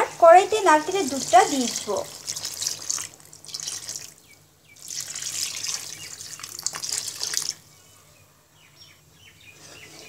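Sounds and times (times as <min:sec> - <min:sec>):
liquid pouring into hot pan: 0:01.0 - 0:04.2, 0:04.8 - 0:07.6.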